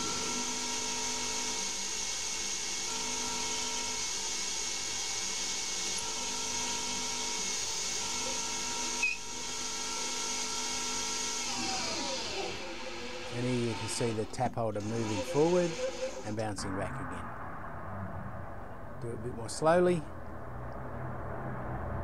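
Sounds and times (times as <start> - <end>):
lathe spindle whine: 0.0 - 17.4.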